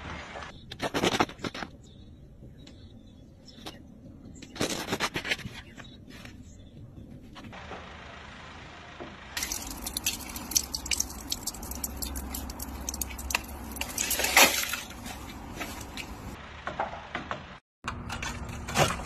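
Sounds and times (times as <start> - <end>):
loud ice crack: 9.4 - 16.3
ice crackling and snapping: 9.4 - 16.4.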